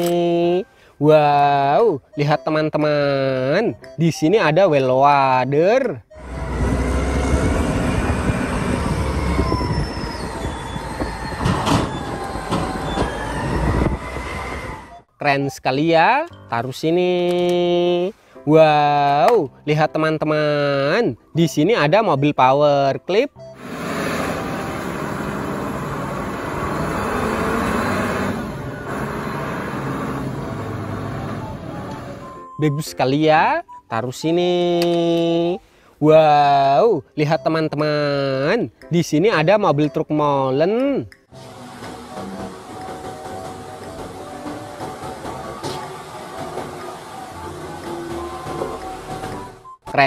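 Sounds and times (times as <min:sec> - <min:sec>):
diesel engine deep rumble: 0:06.1 - 0:15.1, 0:23.5 - 0:32.4.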